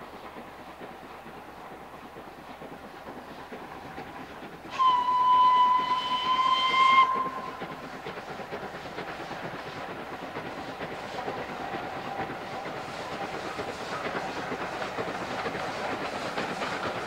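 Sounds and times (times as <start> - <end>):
steam engine running: 0.0 - 17.0
steam locomotive whistle: 4.7 - 7.8.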